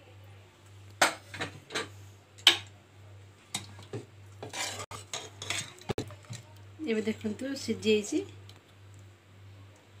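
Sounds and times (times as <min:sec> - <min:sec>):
metal ladle scraping pot: 0:04.4 - 0:06.0.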